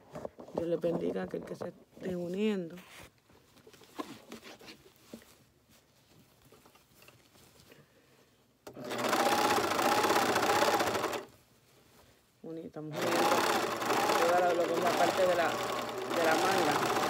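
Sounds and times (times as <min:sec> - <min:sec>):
overlock sewing machine stitching: 0:08.7 - 0:11.3, 0:12.9 - 0:17.0.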